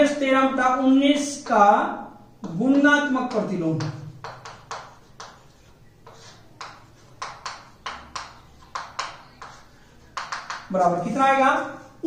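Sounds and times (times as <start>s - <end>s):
chalk tapping and scratching: 2.4s - 11.8s.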